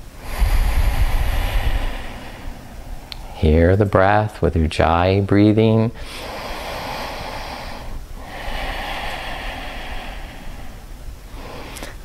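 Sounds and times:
hissing breaths through throat: 0.2 - 3.2, 6.0 - 12.0.

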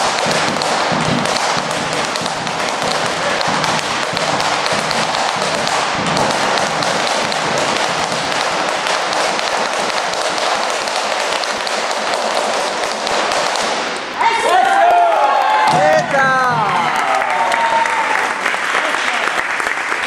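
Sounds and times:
boots stamping: 0.0 - 13.9
bass drums beaten: 0.0 - 14.0, 15.7 - 17.0.

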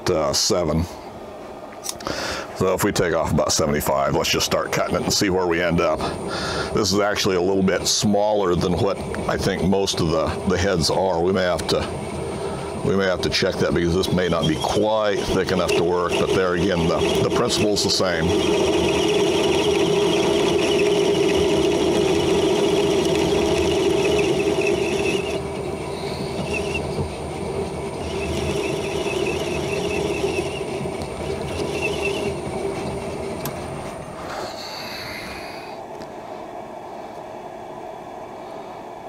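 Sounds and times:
metal lathe running: 2.6 - 34.5
high warbling squeal: 6.7 - 35.6.

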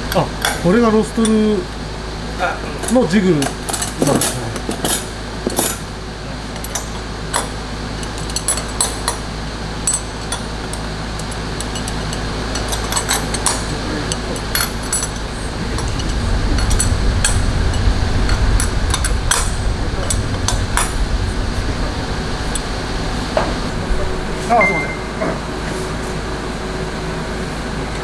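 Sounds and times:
workshop hum: 0.0 - 28.0
metal rods clinking: 9.9 - 19.5
low rumble: 13.6 - 27.1.

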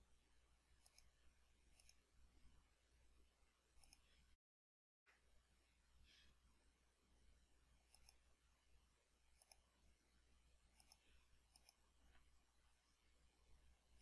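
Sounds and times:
low electrical hum: 0.0 - 4.4, 5.1 - 14.0
computer mouse clicks: 0.8 - 1.1, 1.7 - 2.0, 3.8 - 4.1, 7.9 - 8.2, 9.3 - 9.6, 10.7 - 11.8.

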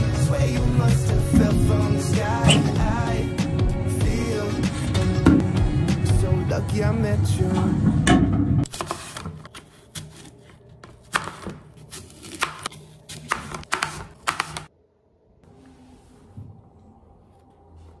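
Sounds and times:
background music: 0.0 - 8.6.

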